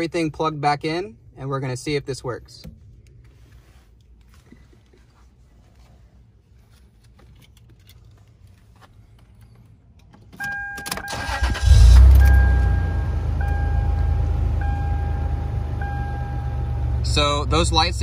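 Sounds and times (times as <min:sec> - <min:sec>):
car engine starting and idling: 0:09.2 - 0:18.0.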